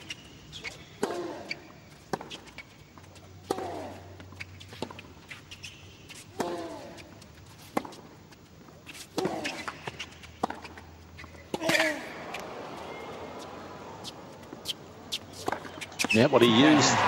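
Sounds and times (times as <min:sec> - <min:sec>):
racket hitting tennis ball: 0:00.0 - 0:02.6, 0:03.4 - 0:04.1, 0:06.1 - 0:08.1, 0:08.9 - 0:16.2.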